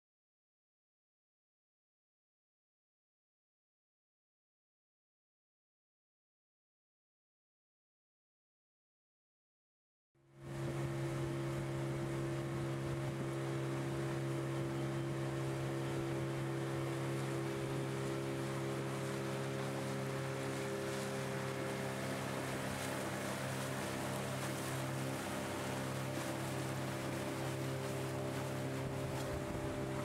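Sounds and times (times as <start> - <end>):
motorboat engine humming: 10.2 - 30.0
water splashing along hull: 10.3 - 30.0.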